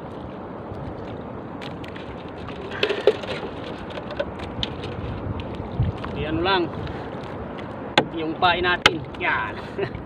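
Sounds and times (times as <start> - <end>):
wind and sea hiss: 0.0 - 10.0
hands rummaging in a boat: 1.6 - 5.5.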